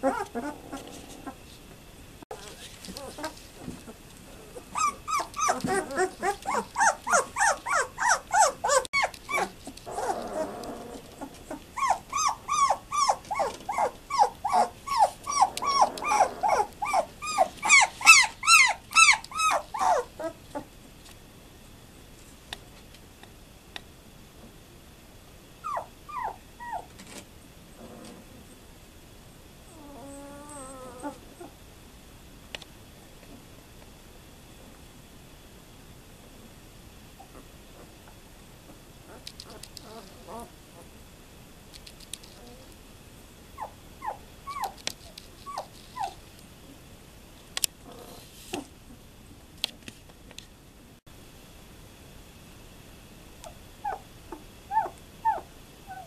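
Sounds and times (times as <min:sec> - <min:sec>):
puppies crying: 0:00.0 - 0:01.4, 0:04.4 - 0:20.6, 0:25.6 - 0:26.9, 0:29.7 - 0:31.5, 0:43.6 - 0:44.8, 0:54.7 - 0:56.0.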